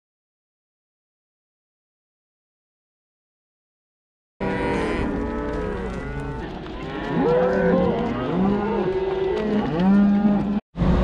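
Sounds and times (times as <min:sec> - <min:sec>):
cattle mooing: 0:04.4 - 0:10.6.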